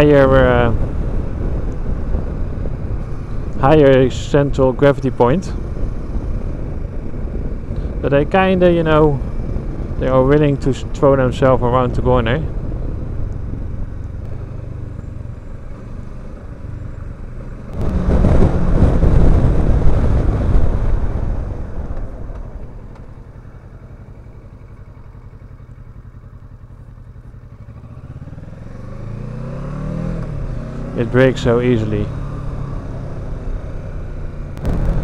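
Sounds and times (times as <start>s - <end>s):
motorcycle engine running: 0.0s - 35.0s
loud rushing noise: 17.7s - 22.8s.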